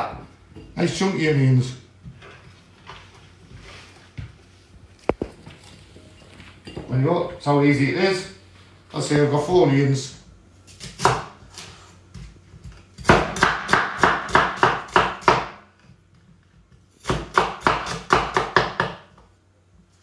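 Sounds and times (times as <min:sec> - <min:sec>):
cleaver chopping onions: 0:10.7 - 0:15.7, 0:17.0 - 0:19.2.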